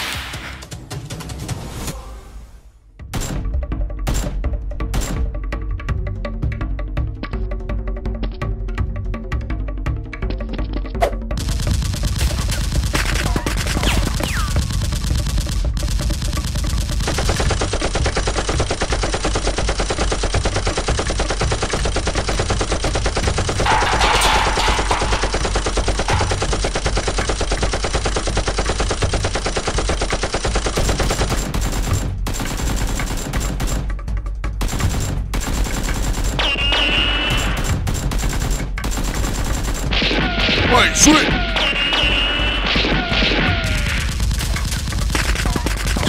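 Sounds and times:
machine gun sound effects: 0:11.4 - 0:33.8, 0:34.6 - 0:46.0.

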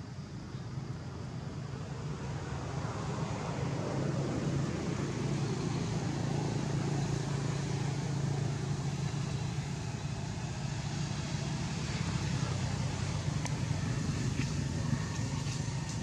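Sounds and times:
low motor hum: 0:04.7 - 0:16.0.

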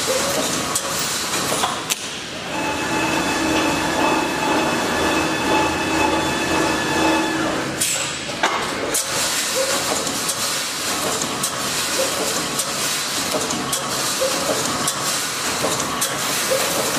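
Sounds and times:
machine whine: 0:02.3 - 0:08.2.

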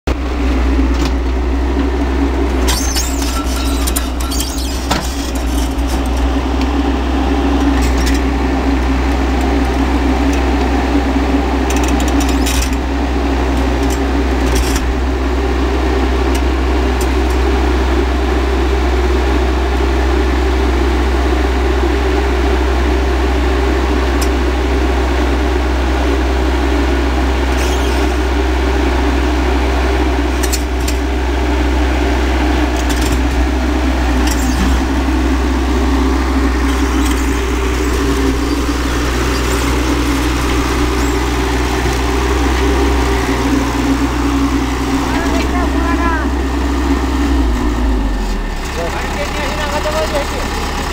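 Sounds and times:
excavator diesel engine running: 0:00.0 - 0:50.9
machine clanks and rattles: 0:00.8 - 0:10.8, 0:11.5 - 0:15.1, 0:30.0 - 0:50.9.

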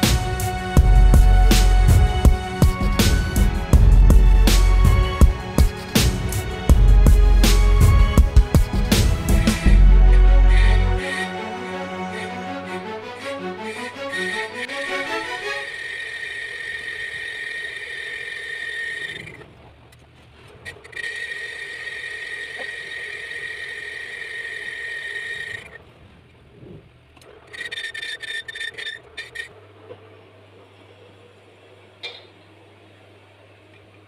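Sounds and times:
low hum: 0:00.0 - 0:27.5
metal lathe squealing: 0:09.6 - 0:19.5, 0:20.6 - 0:25.8, 0:27.3 - 0:29.6.

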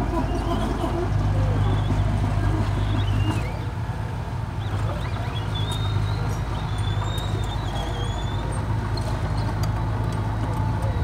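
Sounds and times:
birds chirping: 0:00.0 - 0:11.0
dozer diesel engine running: 0:00.0 - 0:11.0.

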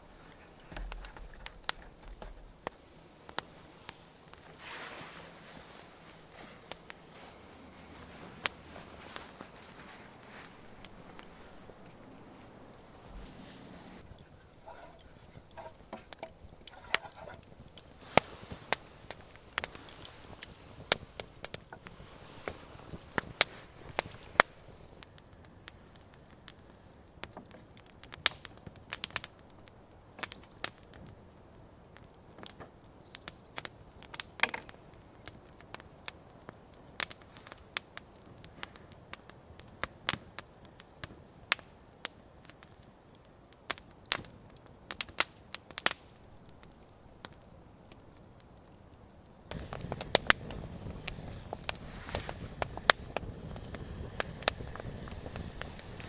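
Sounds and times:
campfire crackling: 0:00.0 - 0:56.0
wood snaps and pops: 0:00.3 - 0:04.5, 0:14.0 - 0:26.0, 0:27.2 - 0:29.3, 0:32.0 - 0:42.7, 0:43.6 - 0:48.1, 0:49.5 - 0:55.9.

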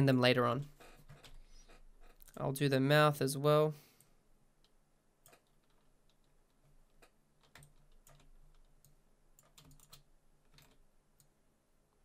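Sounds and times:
mouse and keyboard clicking: 0:04.6 - 0:11.3.

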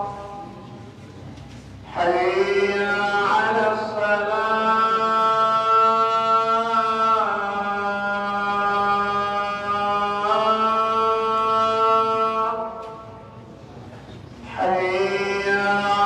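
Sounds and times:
solo voice chanting: 0:01.9 - 0:13.3.

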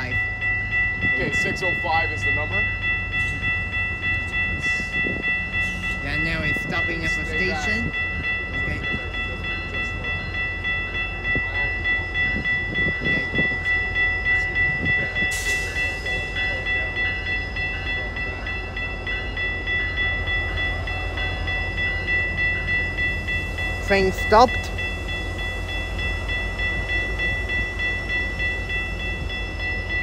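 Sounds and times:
diesel locomotive rumbling: 0:00.0 - 0:30.0
railway crossing bell ringing: 0:00.0 - 0:30.0.

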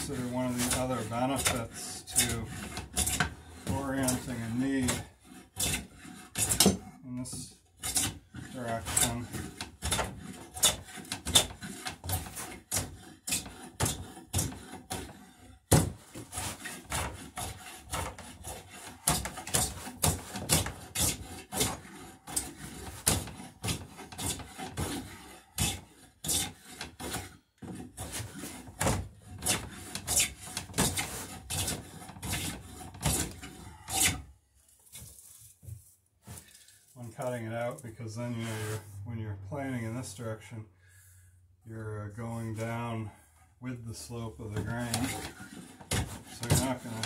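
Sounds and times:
hand plane shaving wood: 0:00.0 - 0:34.3, 0:44.1 - 0:47.0.

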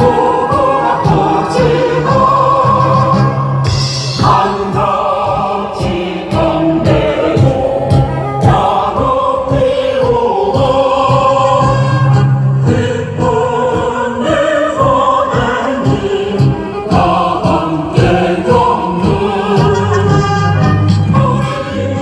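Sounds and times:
choir singing long notes: 0:00.0 - 0:22.0
instrumental bass line: 0:05.8 - 0:09.7, 0:16.0 - 0:22.0.

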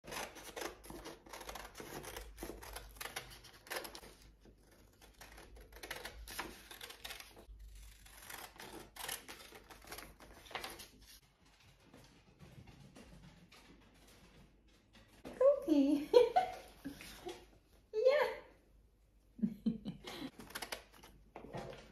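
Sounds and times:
scissors snipping paper: 0:00.0 - 0:11.2, 0:20.3 - 0:21.9.

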